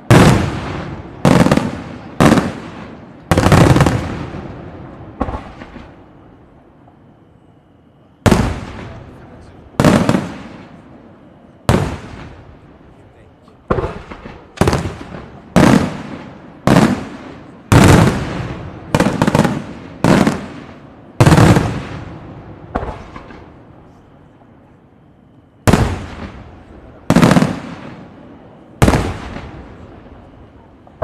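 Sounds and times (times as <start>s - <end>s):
firework shells booming: 0.0s - 6.0s, 8.2s - 10.8s, 11.6s - 12.6s, 13.5s - 23.6s, 25.6s - 31.0s.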